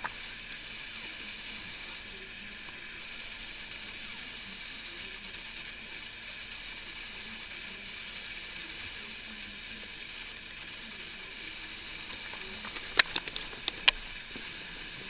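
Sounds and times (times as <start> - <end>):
steady background hiss: 0.0 - 15.0
sharp clicks and taps: 12.3 - 14.0.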